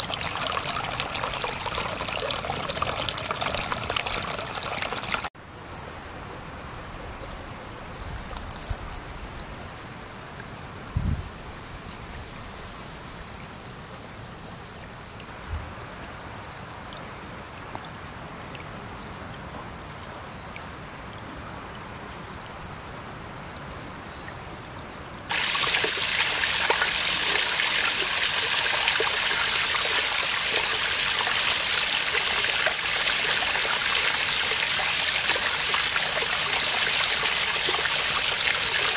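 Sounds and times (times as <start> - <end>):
water pouring into a pool: 0.0 - 5.4, 25.3 - 38.9
water trickling through mud: 0.0 - 10.6, 25.3 - 38.9.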